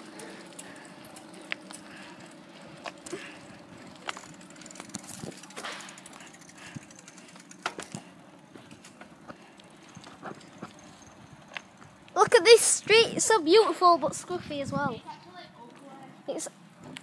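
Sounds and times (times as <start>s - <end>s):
bicycle clicks and rattles: 0.0s - 12.6s
bicycle tyres on tarmac: 0.0s - 17.0s.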